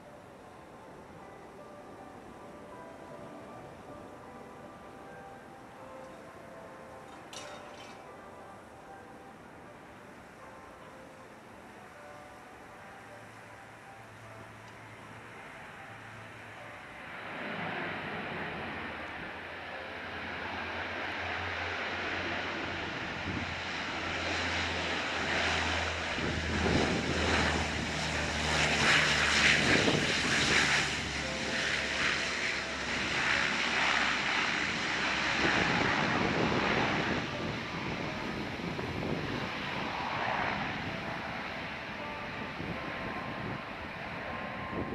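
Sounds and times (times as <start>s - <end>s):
turboprop engines and propellers: 9.4s - 44.9s.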